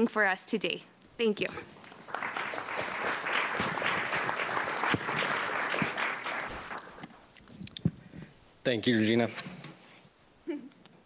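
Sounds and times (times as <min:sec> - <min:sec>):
audience applauding: 0:01.8 - 0:07.2.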